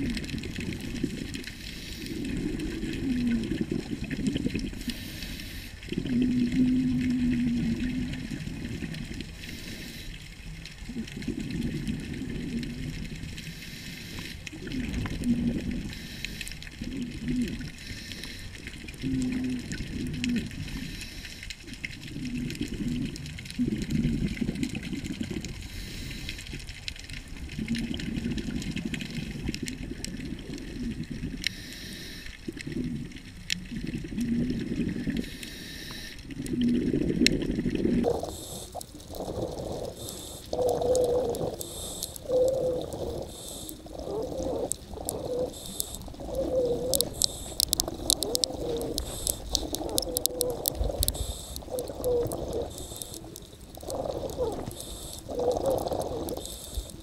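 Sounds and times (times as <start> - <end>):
exhaled bubbles rushing: 0.0 - 5.0, 5.9 - 9.7, 10.4 - 13.4, 14.5 - 16.0, 16.6 - 17.8, 21.7 - 25.6, 27.2 - 31.5, 32.5 - 35.3, 36.2 - 57.0
scuba regulator breathing underwater: 1.4 - 3.9, 4.6 - 8.1, 9.4 - 10.2, 13.4 - 21.6, 25.6 - 26.6, 31.4 - 33.1, 34.1 - 57.0.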